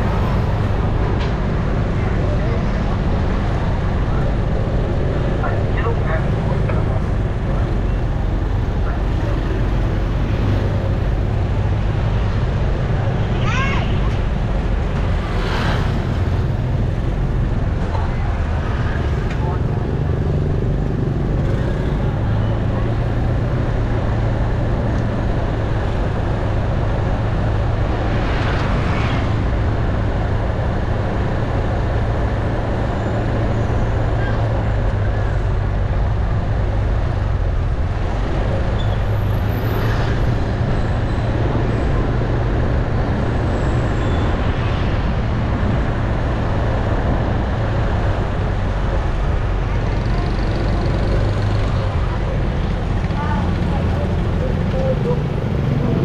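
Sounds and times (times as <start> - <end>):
traffic noise: 0.0 - 56.0
people talking: 2.0 - 4.6, 5.3 - 10.0, 13.4 - 14.3, 17.8 - 20.6, 48.9 - 56.0.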